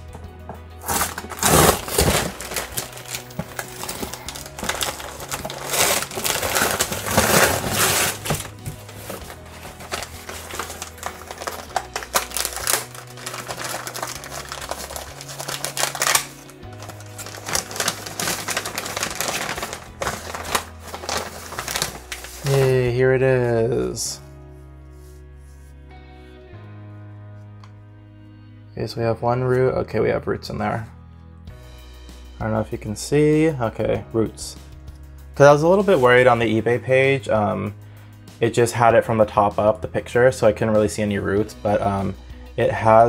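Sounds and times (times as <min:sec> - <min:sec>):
background music with bass line: 0:00.0 - 0:43.0
newspaper crinkling and rustling: 0:00.8 - 0:22.8.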